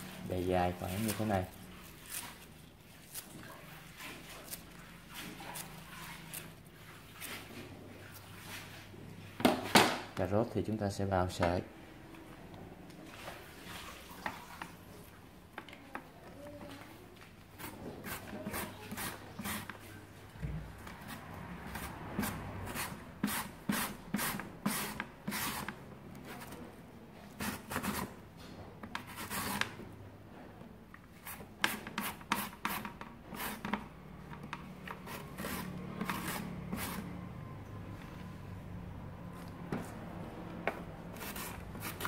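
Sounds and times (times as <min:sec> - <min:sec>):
slicer rasping scrape: 0:34.9 - 0:37.1.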